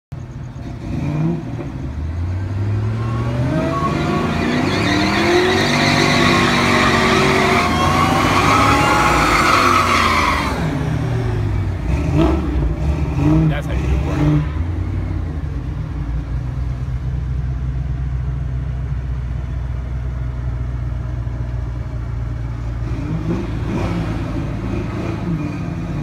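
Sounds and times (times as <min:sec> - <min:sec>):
engines accelerating hard: 0:00.2 - 0:17.5, 0:22.6 - 0:26.0.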